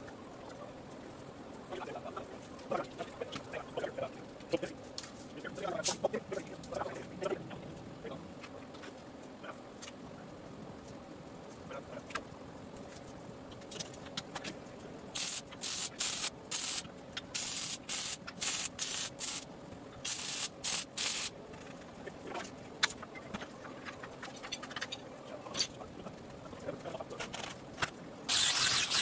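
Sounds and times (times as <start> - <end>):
welding arc sizzle: 15.1 - 21.4, 28.3 - 29.0.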